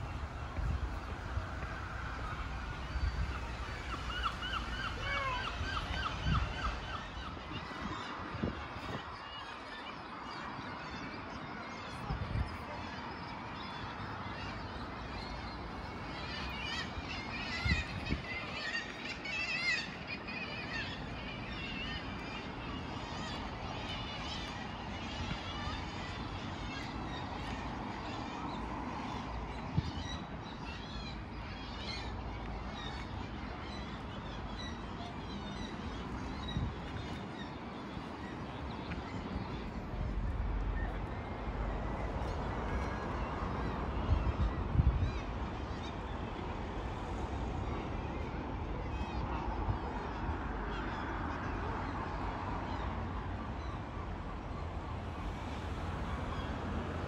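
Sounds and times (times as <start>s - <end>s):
gulls calling: 0.0s - 51.6s
sea rush with low rumble: 0.0s - 57.0s
faint gull calls: 2.9s - 8.6s.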